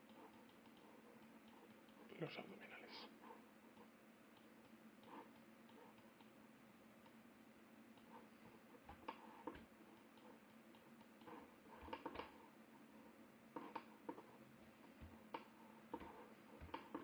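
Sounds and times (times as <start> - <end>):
computer mouse clicking: 0.0 - 2.2, 3.7 - 6.4, 7.9 - 12.4, 13.5 - 17.0
low steady hum: 0.0 - 17.0.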